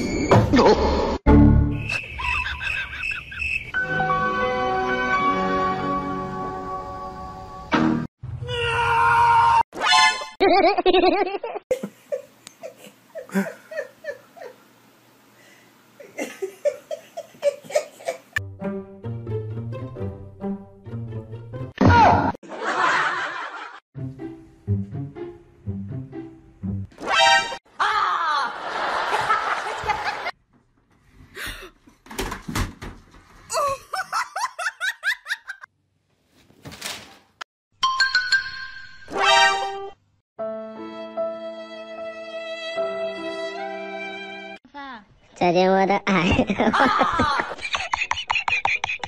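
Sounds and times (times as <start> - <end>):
person laughing hard: 2.2 - 3.4, 10.4 - 14.6, 33.5 - 35.7, 46.2 - 49.0
person giggling softly: 11.7 - 14.6.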